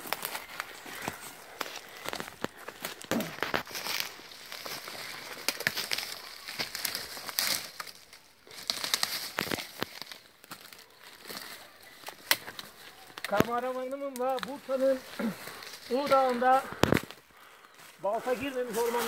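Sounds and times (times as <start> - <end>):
sticks snapping: 0.0 - 14.7, 15.6 - 17.2
footsteps crunching through dry leaves: 0.0 - 19.0
leaf litter rustling underfoot: 0.0 - 19.0.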